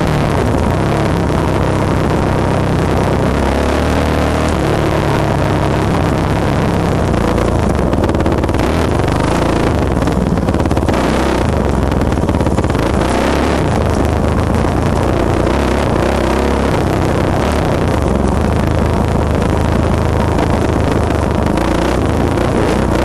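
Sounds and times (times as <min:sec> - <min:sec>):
dirt bike engine revving: 0:00.0 - 0:23.0.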